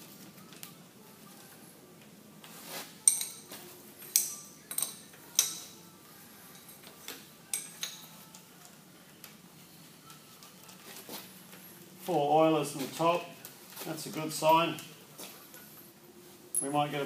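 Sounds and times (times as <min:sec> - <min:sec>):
metal tools clinking on iron: 0:03.0 - 0:05.8, 0:16.5 - 0:17.0.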